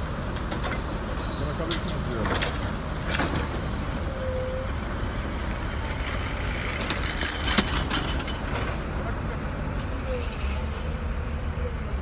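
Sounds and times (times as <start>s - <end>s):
diesel engines rumbling: 0.0s - 12.0s
sharp knocks and clatter: 1.7s - 3.6s.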